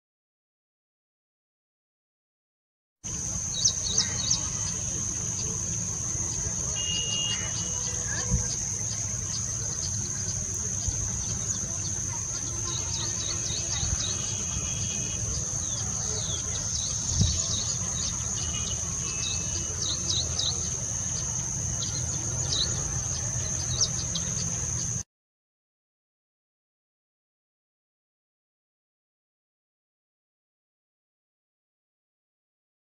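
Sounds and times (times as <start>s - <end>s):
high-pitched insect drone: 3.1s - 24.8s.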